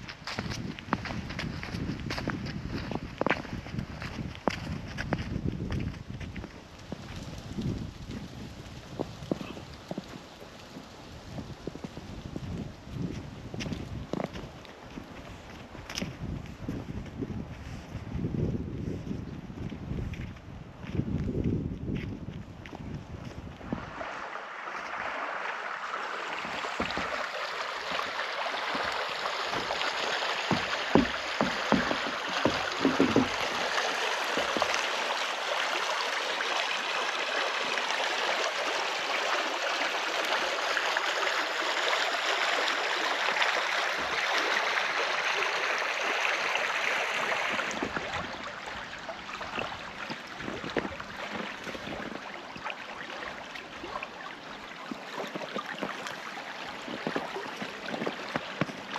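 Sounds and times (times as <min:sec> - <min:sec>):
stream water running: 0:00.0 - 0:17.9, 0:22.6 - 0:58.9
low knocks: 0:30.5 - 0:33.6.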